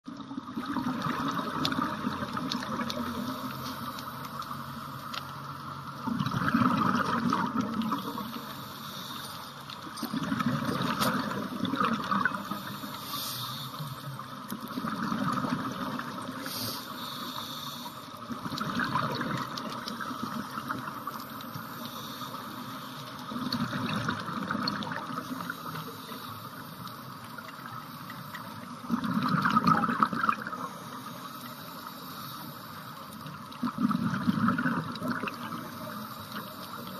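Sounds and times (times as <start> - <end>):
exhaled bubbles underwater: 0.1 - 3.7, 5.8 - 8.6, 9.7 - 12.9, 14.2 - 16.8, 18.1 - 21.9, 23.0 - 25.9, 27.3 - 31.1, 33.2 - 36.9
steady regulator hiss: 2.0 - 6.0, 7.8 - 10.0, 10.7 - 18.5, 19.6 - 23.5, 25.1 - 28.9, 30.5 - 33.6, 35.3 - 36.9.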